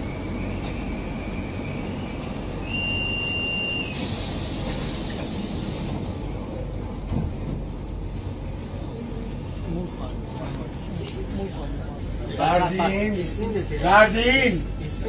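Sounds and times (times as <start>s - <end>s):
train carriage rumbling: 0.0s - 15.0s
hiss: 3.9s - 6.1s.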